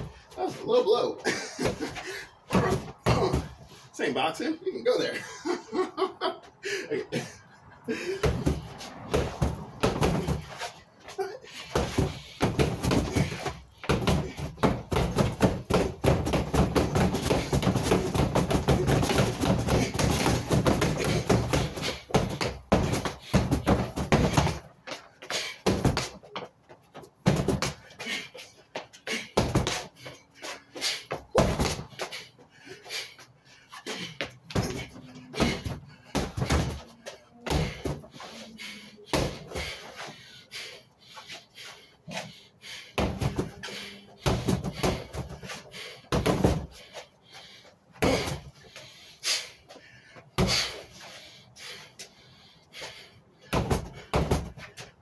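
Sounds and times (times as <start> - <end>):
punches thudding on punching bag: 1.6 - 3.6, 8.2 - 10.7, 11.7 - 24.7, 25.6 - 26.3, 27.2 - 27.9, 29.3 - 29.9, 31.0 - 32.1, 34.2 - 38.1, 39.1 - 39.8, 43.0 - 45.5, 46.1 - 46.8, 48.0 - 48.5, 50.4 - 50.8, 53.5 - 54.7.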